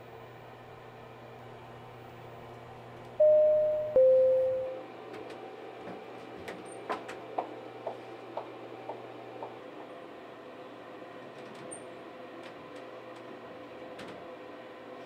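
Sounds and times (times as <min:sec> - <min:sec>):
elevator chime: 0:03.2 - 0:04.9.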